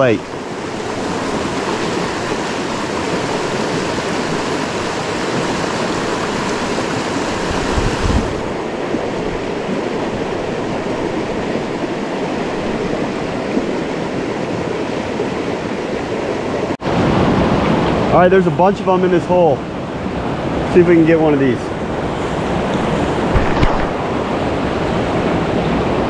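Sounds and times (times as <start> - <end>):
creek rushing over rocks: 0.0 - 26.0
dull bump: 23.2 - 24.0.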